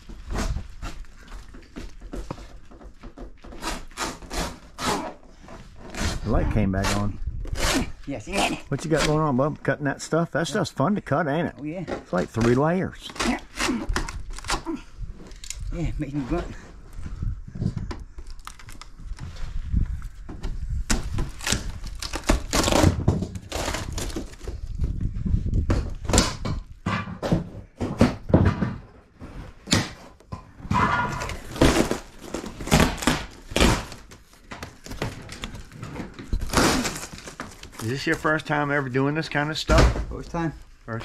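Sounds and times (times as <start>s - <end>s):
wood being pried loose: 0.1s - 9.2s, 11.9s - 15.7s, 20.4s - 24.9s, 31.1s - 37.8s.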